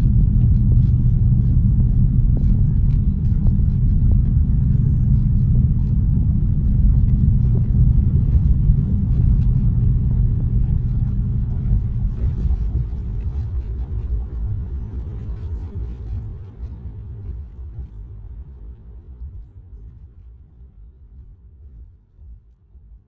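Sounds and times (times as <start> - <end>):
aircraft cabin rumble: 0.0 - 22.3.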